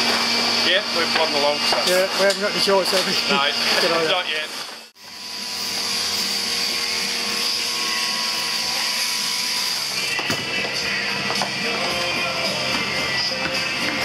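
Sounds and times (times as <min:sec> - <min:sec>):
electric shears whirring: 0:00.0 - 0:14.0
music: 0:05.2 - 0:14.0.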